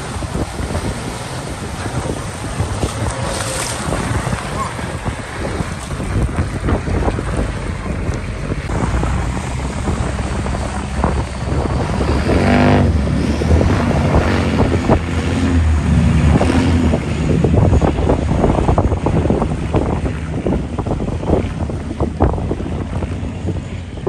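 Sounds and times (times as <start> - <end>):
off-road vehicle engines under load: 0.0 - 17.9
water splashing around wheels: 0.0 - 24.0
wind on microphone: 0.0 - 24.0.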